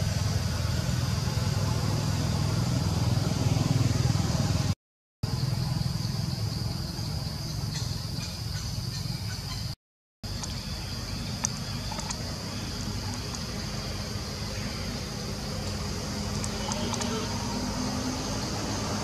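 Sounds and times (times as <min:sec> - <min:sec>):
high insect drone: 0:00.0 - 0:04.6, 0:05.2 - 0:19.0
faint clicks: 0:11.4 - 0:12.2.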